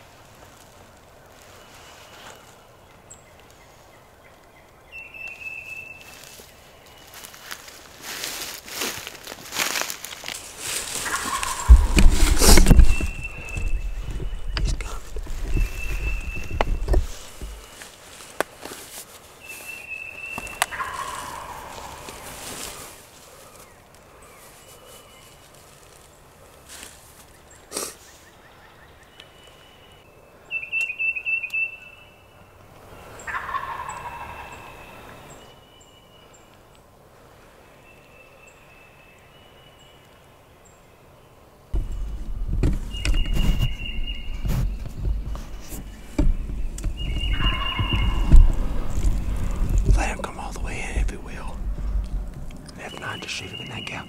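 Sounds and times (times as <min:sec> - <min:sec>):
turkey gobbling: 0:10.9 - 0:12.0, 0:20.6 - 0:22.2, 0:33.3 - 0:34.8, 0:47.0 - 0:49.1
low rumbling and knocking noise: 0:11.4 - 0:17.6, 0:41.8 - 0:52.8.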